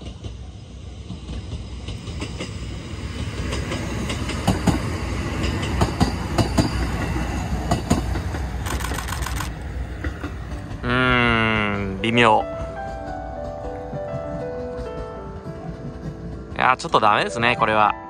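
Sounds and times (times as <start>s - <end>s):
diesel railcar passing: 0.0s - 18.0s
wheels clacking over rail joints: 1.3s - 10.8s.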